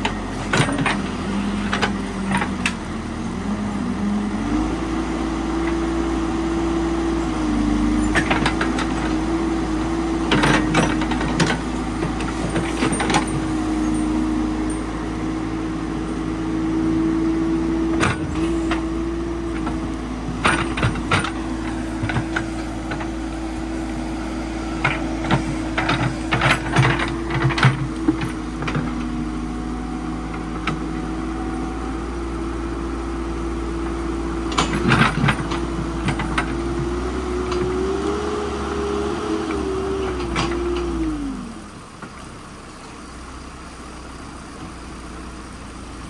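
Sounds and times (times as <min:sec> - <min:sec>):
diesel engine running: 0:00.0 - 0:46.0.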